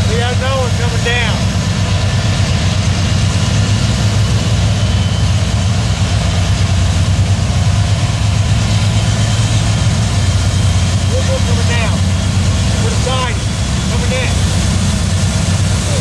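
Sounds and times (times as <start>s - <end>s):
locomotive engine drone: 0.0s - 16.0s
moving train noise: 0.0s - 16.0s.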